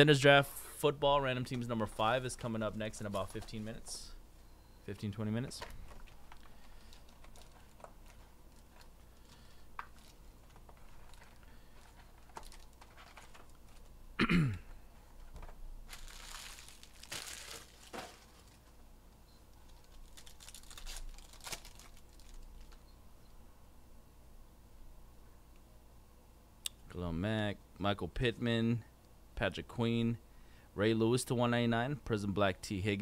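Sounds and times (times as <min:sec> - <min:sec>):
plastic and cardboard crinkling: 0:02.4 - 0:04.0, 0:05.4 - 0:14.0, 0:15.2 - 0:18.8, 0:19.5 - 0:22.8.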